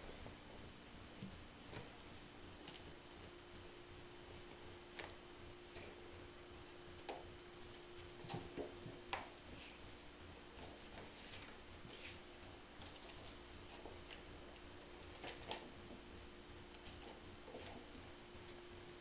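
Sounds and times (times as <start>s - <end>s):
faint hum: 0.0s - 19.0s
ferret rustling on towels: 10.6s - 12.4s.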